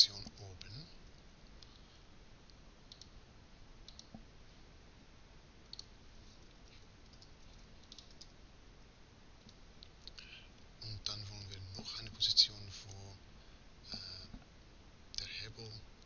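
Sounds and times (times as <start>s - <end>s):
low hiss: 0.0s - 16.0s
keyboard and mouse clicks: 2.9s - 3.2s, 3.9s - 4.2s, 5.6s - 5.9s, 6.6s - 8.4s.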